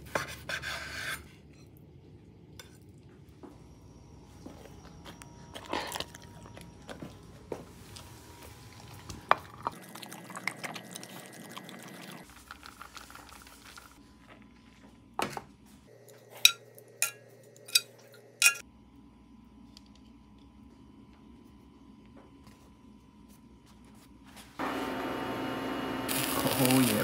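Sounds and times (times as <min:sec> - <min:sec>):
utensils and dishes clattering: 0:16.3 - 0:18.6.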